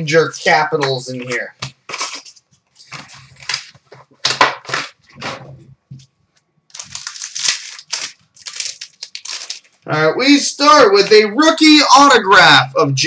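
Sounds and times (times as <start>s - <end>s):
card pack packaging crinkling: 1.2s - 5.0s, 6.7s - 9.8s.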